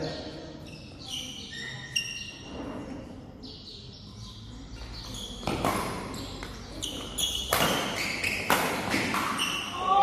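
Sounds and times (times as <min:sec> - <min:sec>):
shoes squeaking on court floor: 0:00.5 - 0:03.0, 0:04.8 - 0:10.0
racket hitting shuttlecock: 0:05.4 - 0:09.8.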